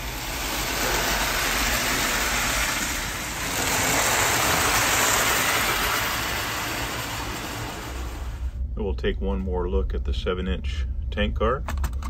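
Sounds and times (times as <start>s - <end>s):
toy train whirring and clattering: 0.0s - 8.5s.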